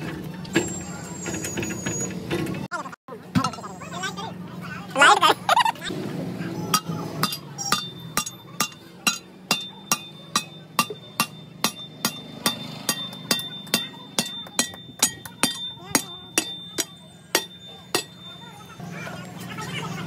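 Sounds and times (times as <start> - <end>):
steel bar clanking on metal: 6.7 - 18.4.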